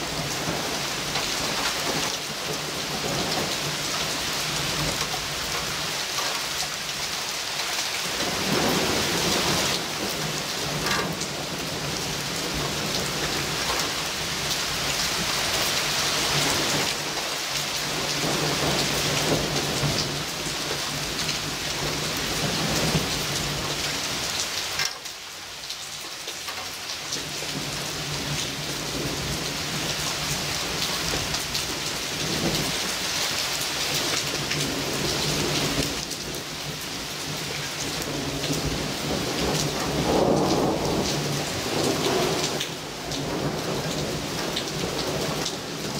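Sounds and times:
thunder rumbling: 0.0s - 3.9s, 17.9s - 24.1s, 34.0s - 45.9s
heavy rain pouring: 0.0s - 45.9s.

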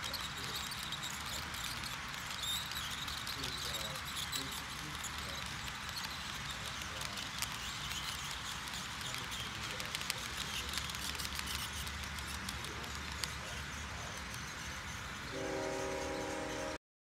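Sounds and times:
model train wheels clicking: 0.0s - 16.8s
model locomotive horn chord: 15.3s - 16.8s.

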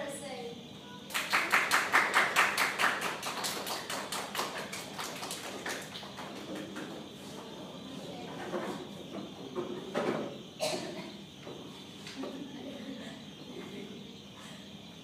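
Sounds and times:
audience applauding: 1.1s - 6.8s.

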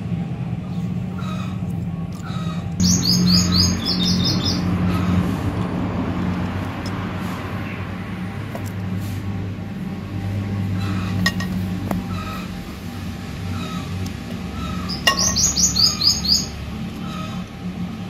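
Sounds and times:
small bird chirping: 2.2s - 5.2s, 14.5s - 17.4s.

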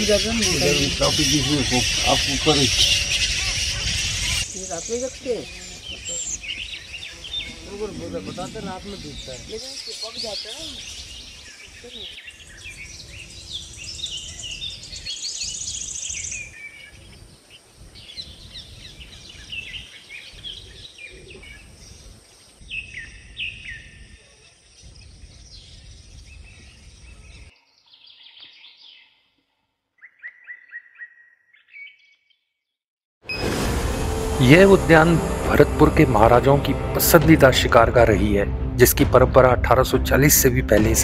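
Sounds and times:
birds chirping: 0.0s - 41.0s
wind rumble on microphone: 1.8s - 4.5s, 17.0s - 27.5s.

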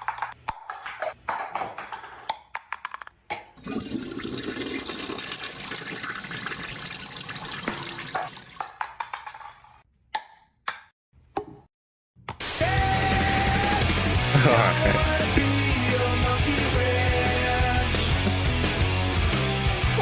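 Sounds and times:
toilet flushing: 3.6s - 8.6s.

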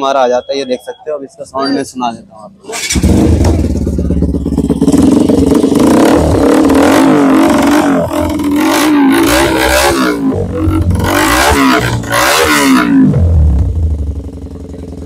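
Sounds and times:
motorcycle engine idling and revving: 2.5s - 15.0s.

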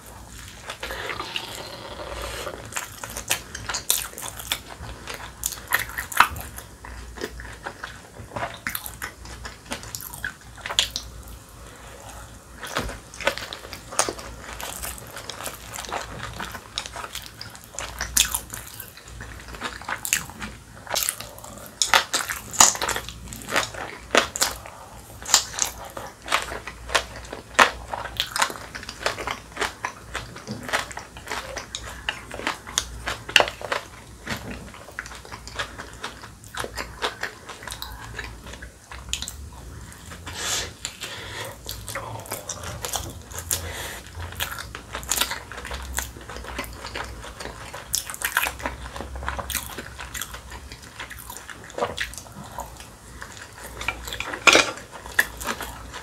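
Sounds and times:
crunchy chewing: 0.0s - 56.0s.

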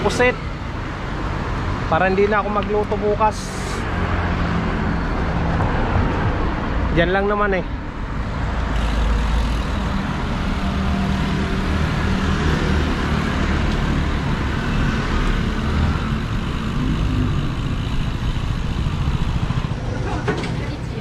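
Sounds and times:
cars and scooters passing: 0.0s - 21.0s
constant low rumble: 15.2s - 21.0s.

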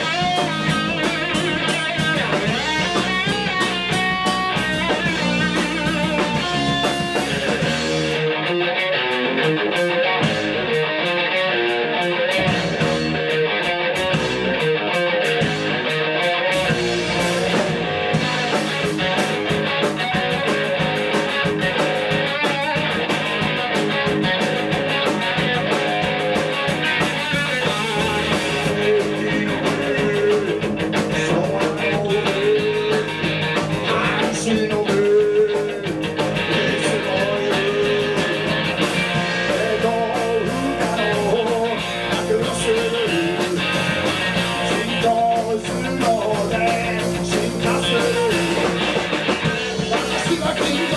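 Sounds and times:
drum kit: 0.0s - 50.9s
electric guitars: 0.0s - 50.9s
person singing: 27.4s - 50.9s.

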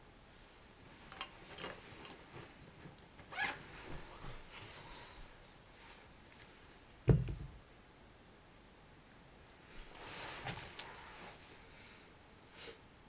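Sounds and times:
rustling of backpacks and clothes: 0.8s - 7.6s, 9.4s - 11.7s
dull thump: 7.1s - 7.6s.

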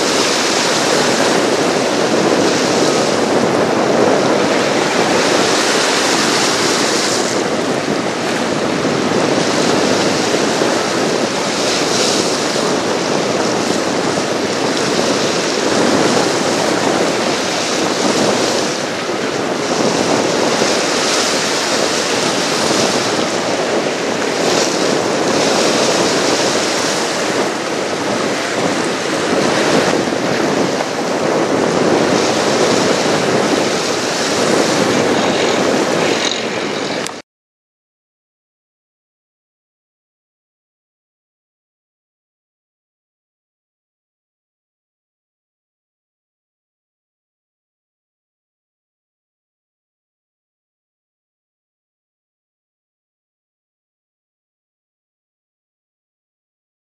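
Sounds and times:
waves splashing on rocky shore: 0.0s - 37.2s
wind buffeting microphone: 0.0s - 37.2s.

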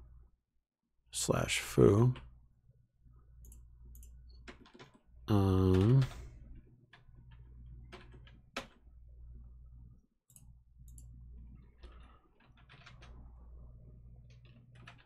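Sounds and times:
steady low hum: 5.1s - 14.9s
keyboard keys clicking: 11.8s - 13.2s, 14.2s - 15.0s.

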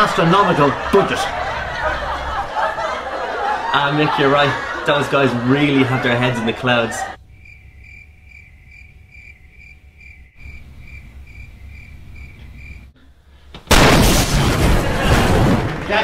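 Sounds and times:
cricket chirping: 7.2s - 12.9s.

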